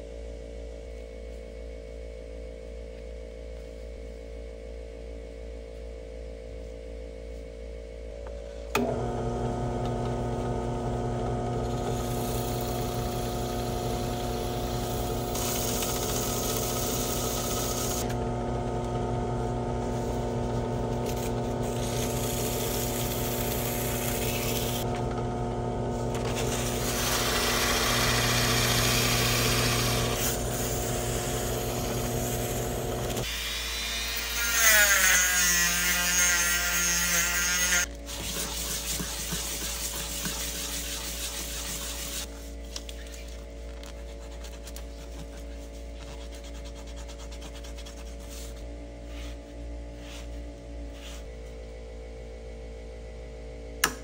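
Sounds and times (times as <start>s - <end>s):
power tool motor humming: 21.6s - 25.2s, 26.0s - 37.9s.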